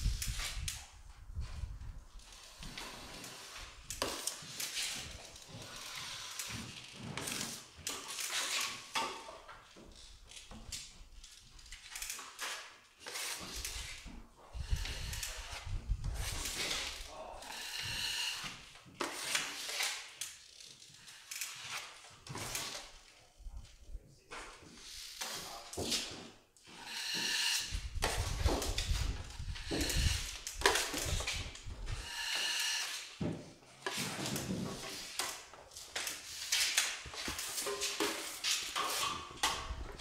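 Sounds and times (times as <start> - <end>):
trowel scraping joint compound: 2.4 - 6.6, 7.2 - 9.4, 12.2 - 20.2, 24.8 - 39.8
trowel scraping across hawk: 13.0 - 14.0, 14.6 - 20.0, 26.7 - 28.4, 29.0 - 33.2.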